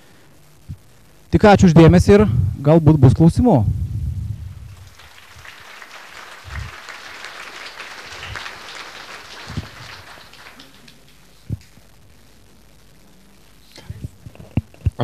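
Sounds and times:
low thumps: 3.6s - 4.9s
audience applauding: 4.6s - 11.8s.

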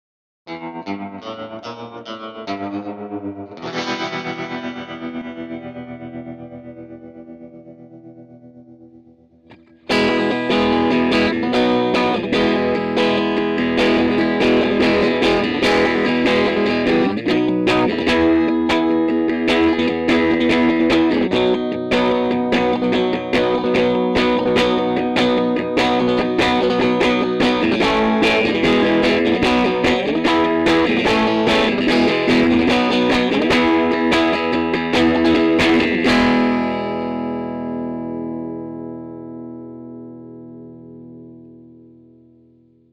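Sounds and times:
electric guitar strummed chords: 0.5s - 42.9s.

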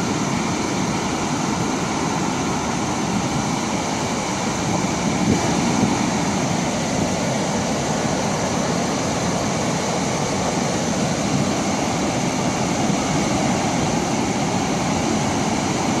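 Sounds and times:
water rushing through spillway: 0.0s - 16.0s.

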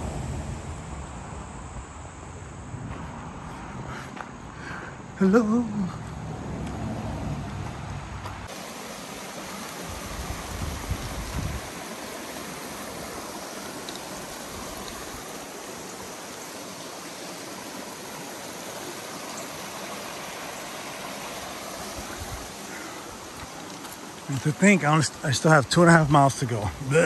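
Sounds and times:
creek water rushing over rocks: 7.6s - 27.0s.

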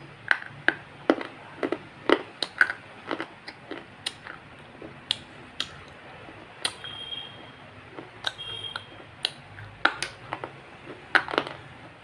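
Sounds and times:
person chewing with mouth smacks: 0.3s - 12.0s.

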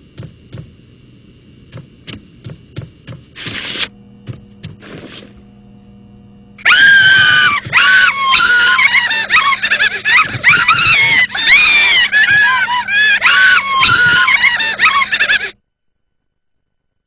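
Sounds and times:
faint low hum: 0.0s - 17.0s
high-pitched squealing cries: 6.6s - 15.6s.

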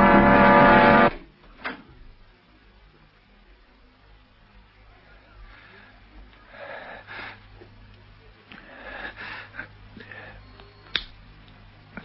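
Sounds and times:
low recording hum: 0.0s - 12.0s
person breathing: 5.4s - 7.5s, 8.5s - 10.6s.

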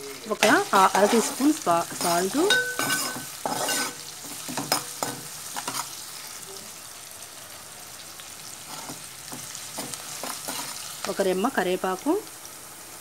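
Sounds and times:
ladle scraping metal pan: 0.0s - 5.9s
onions sizzling in hot oil: 0.0s - 13.0s.

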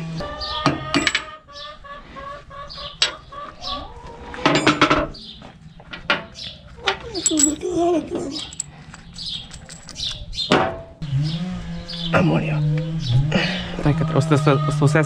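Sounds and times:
hen clucking: 0.2s - 4.5s
sharp clinks: 7.2s - 10.3s.

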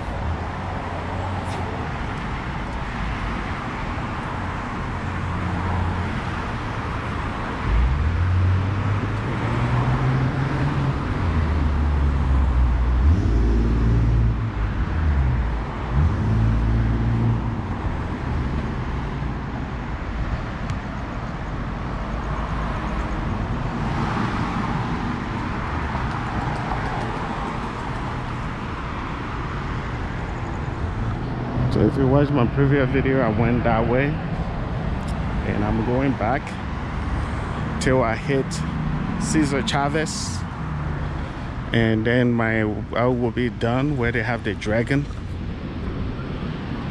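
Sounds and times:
cars and trucks driving past: 0.0s - 46.9s
traffic hum: 0.0s - 46.9s
vehicle engine revving: 7.6s - 18.5s.

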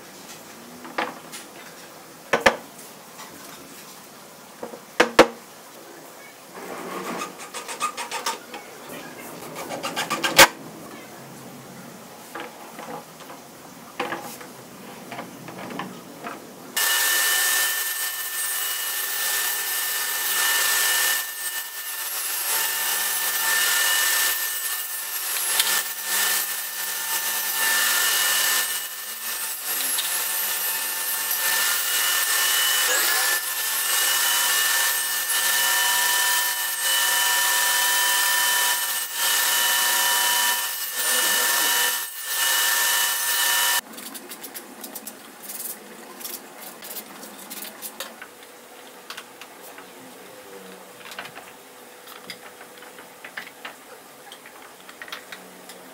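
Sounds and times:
saw blade cutting board: 6.6s - 8.5s, 9.4s - 10.6s, 16.8s - 43.8s
table saw whining: 16.8s - 43.8s.

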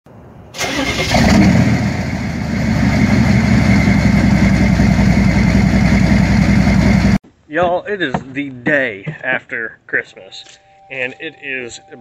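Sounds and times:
diesel truck engine idling: 1.8s - 7.2s.

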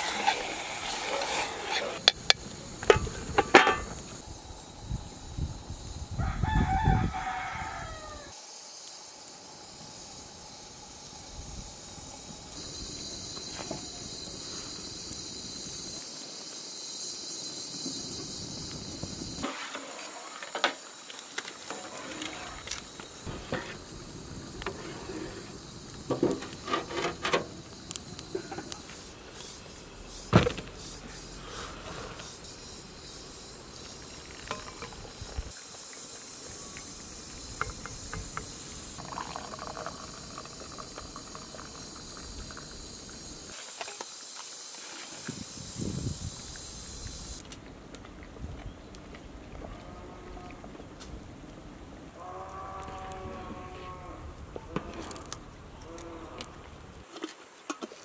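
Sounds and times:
rooster crowing: 6.2s - 8.4s.

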